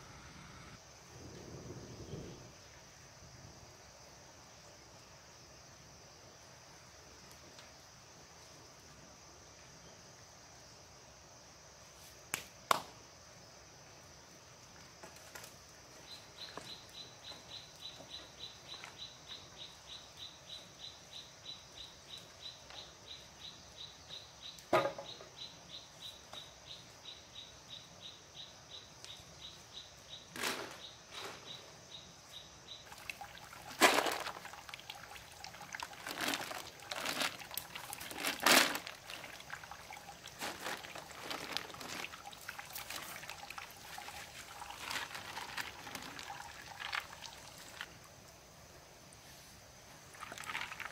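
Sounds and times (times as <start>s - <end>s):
water trickling in bamboo pipe: 32.8s - 48.3s, 50.1s - 50.9s
handling knocks and rustles: 33.7s - 34.5s, 36.0s - 39.4s, 40.3s - 43.2s.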